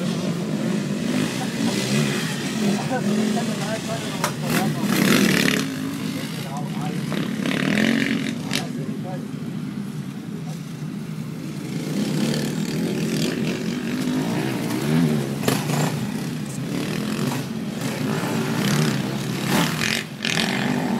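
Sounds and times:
dirt bike engines revving: 0.0 - 20.9.

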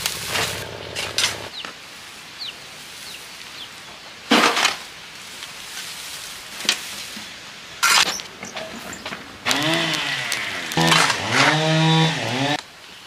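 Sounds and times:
garden tool scraping dirt: 0.0 - 1.5, 7.8 - 12.5
dry brush rustling: 0.0 - 3.8, 4.8 - 10.5.

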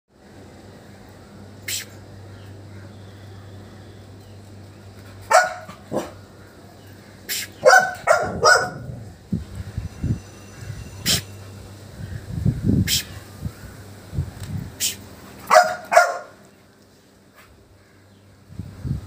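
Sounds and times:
short sharp hisses: 1.6 - 2.0, 7.3 - 7.6, 12.8 - 13.2, 14.8 - 15.1
puppy barking: 5.3 - 6.2, 7.6 - 9.0, 15.5 - 16.4.

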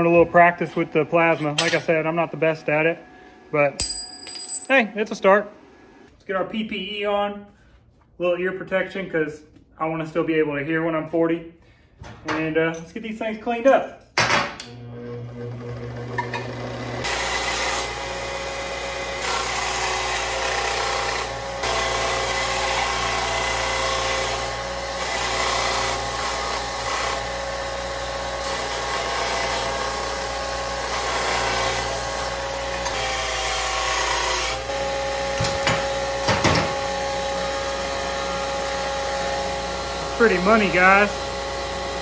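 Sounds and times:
belt grinder motor hum: 14.7 - 42.0.

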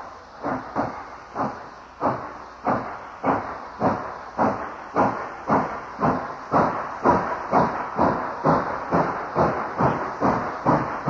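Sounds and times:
steam locomotive exhaust chuffs: 0.0 - 11.0.

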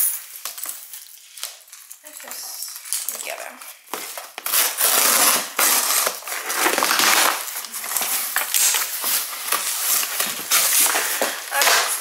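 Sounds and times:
cardboard box being torn open: 4.4 - 7.5.

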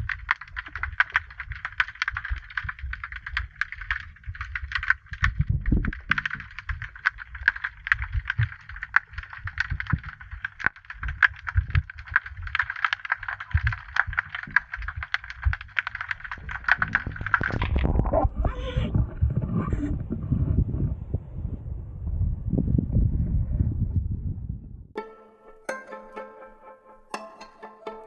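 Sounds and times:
low underwater thumps and rumble: 0.0 - 12.7, 13.5 - 24.9
underwater crackle of clicks: 0.0 - 19.6.

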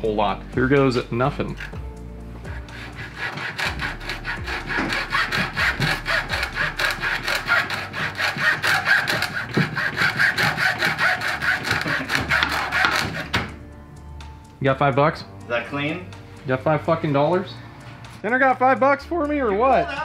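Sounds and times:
hacksaw cutting hose: 0.9 - 1.8, 2.4 - 13.6.

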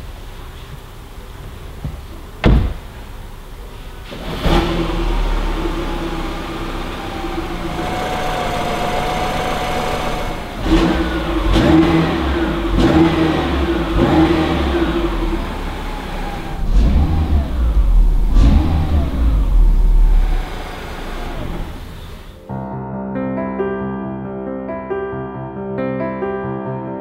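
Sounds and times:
car engine starting and idling: 0.0 - 22.4
car engine revving: 4.0 - 22.4.

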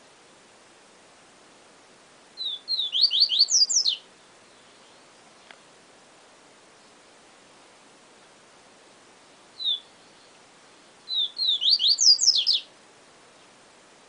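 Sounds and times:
bird whistling song: 2.4 - 4.0, 9.6 - 10.4, 11.1 - 12.7.

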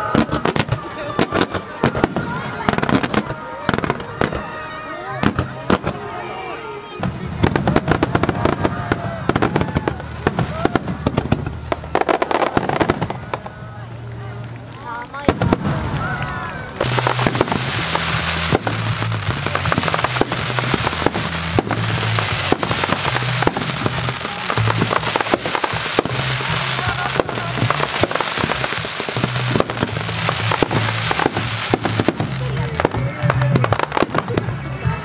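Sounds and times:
fireworks crackling: 0.0 - 35.0
firework shells bursting: 16.8 - 32.9
music with low bass line: 16.8 - 35.0.

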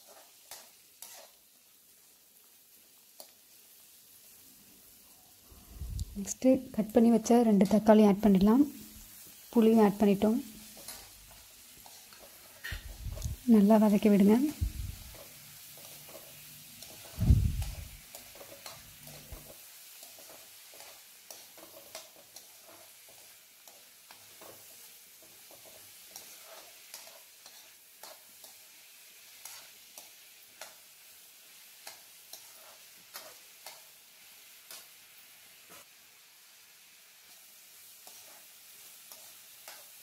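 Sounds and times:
spoon stirring and scraping: 0.0 - 1.4, 10.6 - 34.0, 37.2 - 40.0
faint sizzle: 0.0 - 40.0.

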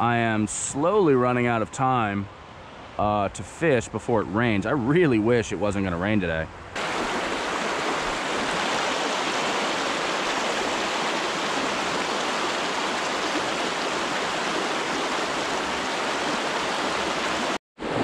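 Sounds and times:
water rushing over rocks: 6.8 - 18.0.

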